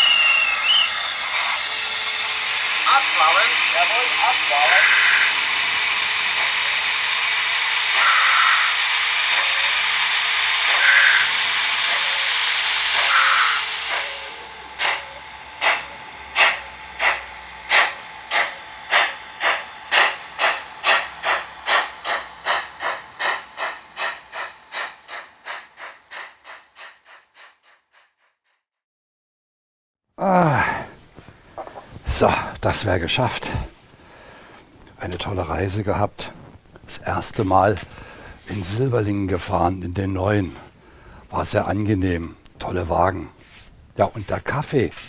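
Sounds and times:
steam hissing: 0.0 - 28.0
steam locomotive chuffs: 0.0 - 28.2, 32.1 - 45.0.

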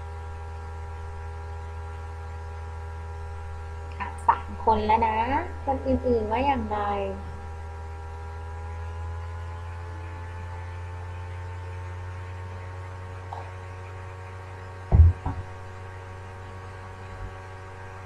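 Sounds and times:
low electrical hum: 0.0 - 18.0
low thump: 14.9 - 15.5.

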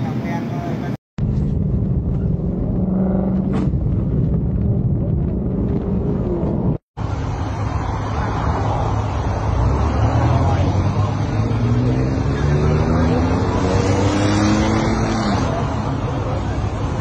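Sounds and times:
road and wind noise: 0.0 - 17.0
low engine hum: 1.2 - 12.5
hissing roadside traffic: 7.0 - 17.0.

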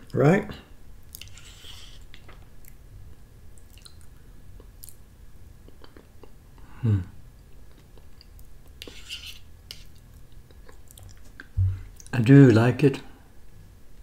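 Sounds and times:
close-up eating sounds: 1.0 - 12.2
closed-mouth hum: 5.6 - 9.0, 10.4 - 13.2.

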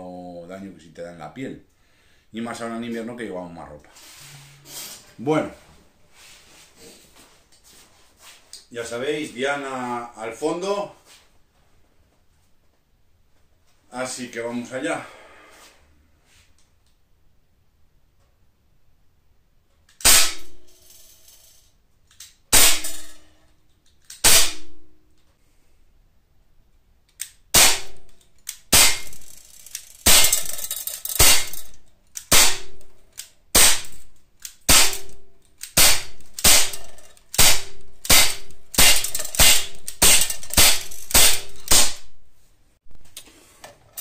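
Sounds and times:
air pistol shots cracking: 20.0 - 20.7, 22.5 - 23.2, 24.2 - 24.8, 27.5 - 29.4, 30.0 - 32.9, 33.5 - 42.2
bb striking steel target: 31.2 - 31.7, 34.7 - 42.2.

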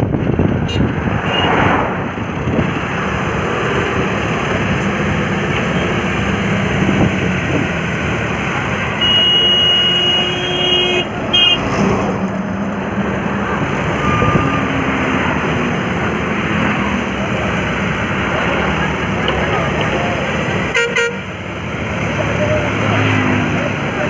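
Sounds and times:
heavy diesel engines droning: 0.0 - 24.0
high-pitched horn tone: 20.8 - 21.2.

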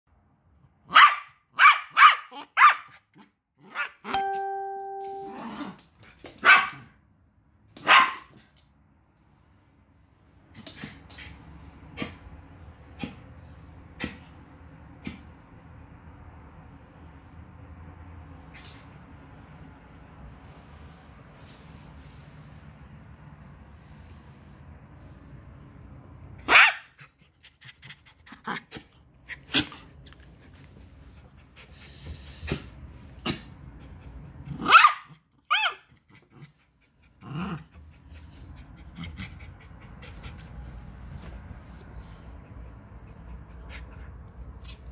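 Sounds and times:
dogs barking: 0.9 - 2.9, 6.4 - 6.9, 34.6 - 35.8
dog panting: 36.4 - 41.2.

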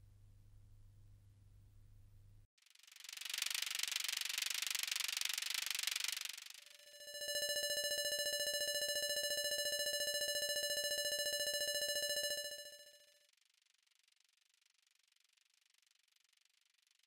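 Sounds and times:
high fluttering beep tone: 6.7 - 13.0.

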